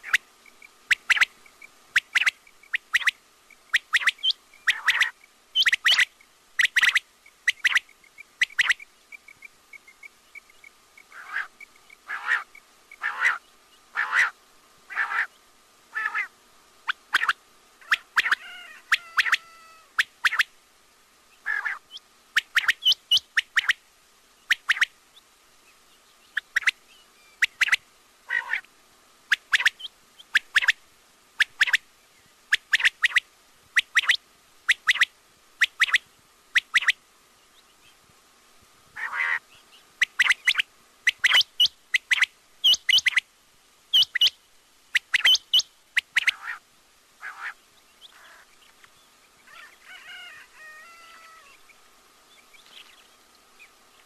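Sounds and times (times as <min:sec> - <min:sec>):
quail calling: 0:00.0 - 0:00.2, 0:00.9 - 0:10.5, 0:11.1 - 0:15.3, 0:15.9 - 0:20.5, 0:21.4 - 0:23.8, 0:27.4 - 0:28.7, 0:33.8 - 0:36.0, 0:36.6 - 0:37.0, 0:39.0 - 0:43.2, 0:45.0 - 0:46.6, 0:47.2 - 0:48.5, 0:49.4 - 0:51.7
faint steady tone: 0:00.0 - 0:54.0.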